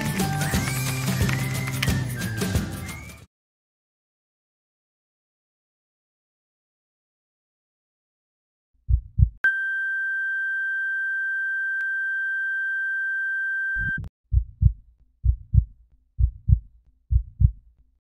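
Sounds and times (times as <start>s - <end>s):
heartbeat thumps: 8.8s - 9.4s, 13.9s - 17.7s
heart monitor flatline beep: 9.5s - 14.1s.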